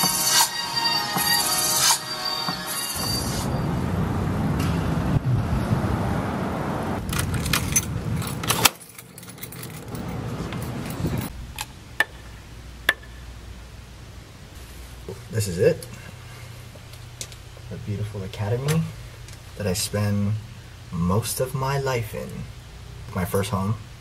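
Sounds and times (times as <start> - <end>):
road noise: 0.0 - 19.7
keys jangling: 7.1 - 11.3.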